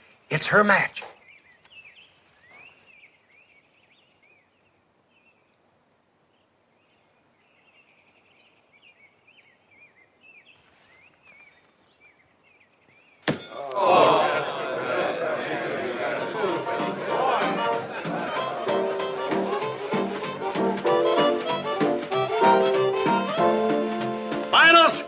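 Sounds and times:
faint bird chirps: 0.0s - 13.2s
horseshoe clanking on stake: 13.2s - 13.8s.

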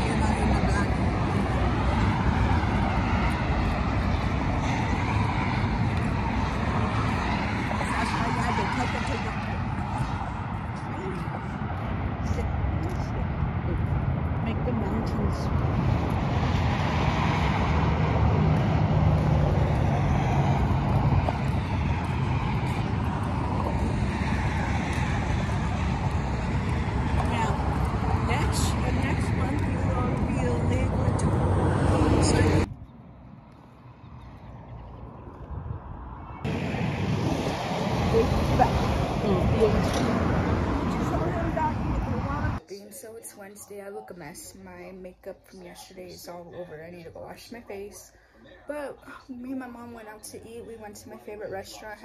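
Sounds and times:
wind buffeting microphone: 0.0s - 33.0s, 34.2s - 42.6s
road traffic rumble: 0.0s - 52.0s.

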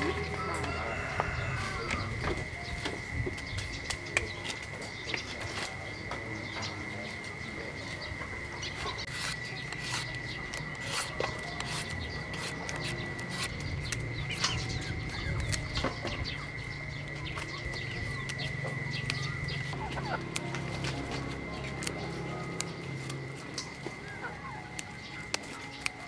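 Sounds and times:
chickens clucking: 0.0s - 26.0s
high-pitched hum: 0.0s - 26.0s
small birds calling: 0.0s - 26.0s
stems snapping by hand: 1.8s - 6.3s, 8.3s - 26.0s
knife cutting fruit: 9.0s - 14.6s.

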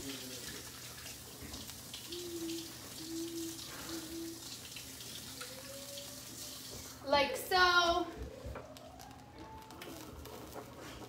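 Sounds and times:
water running in sink: 0.0s - 7.9s.

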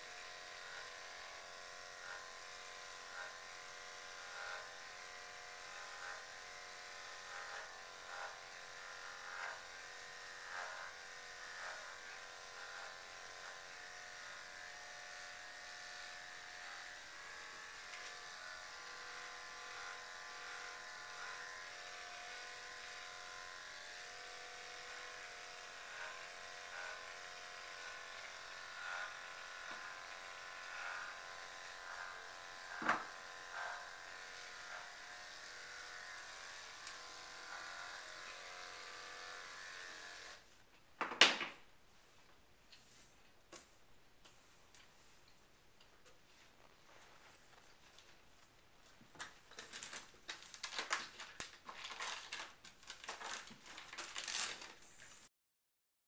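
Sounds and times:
electric clippers buzzing: 0.0s - 40.5s, 49.6s - 54.8s.

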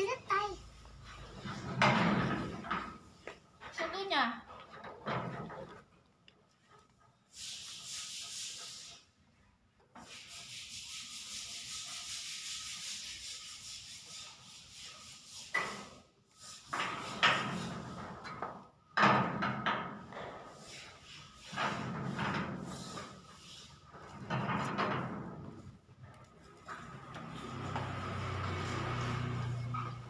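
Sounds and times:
paintbrush scrubbing in palette: 22.7s - 23.8s.

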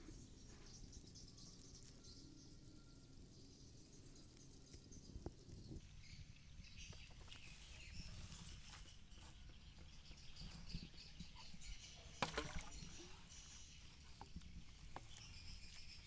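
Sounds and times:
birds chirping: 0.0s - 16.0s
insects chirping: 7.6s - 16.0s.

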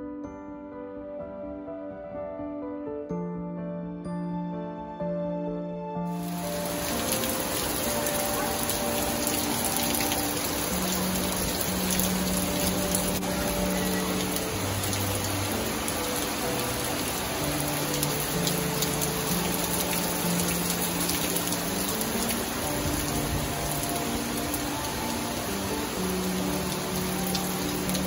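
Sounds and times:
soft background music: 0.0s - 28.0s
heavy rain pouring: 6.1s - 28.0s.

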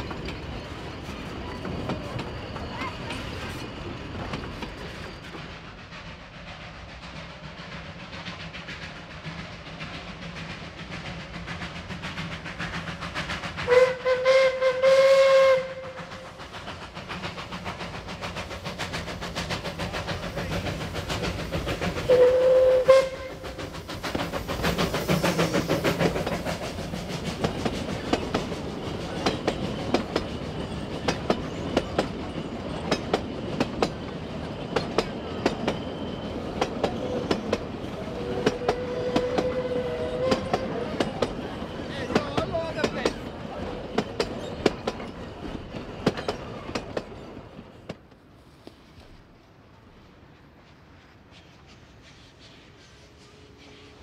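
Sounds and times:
carriages clicking over rail joints: 0.0s - 13.8s, 15.7s - 48.2s
steam locomotive rushing past: 0.0s - 54.0s
steam train whistle: 12.4s - 16.5s, 22.0s - 23.8s, 37.0s - 41.2s.

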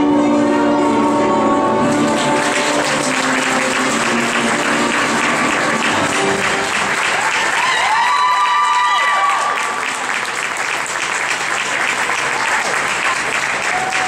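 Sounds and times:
background music: 0.0s - 8.0s
audience applauding: 1.8s - 14.0s.

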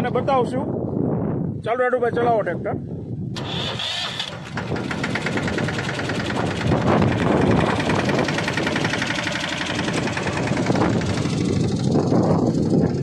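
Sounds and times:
tractor diesel engine clatter: 3.4s - 13.0s.

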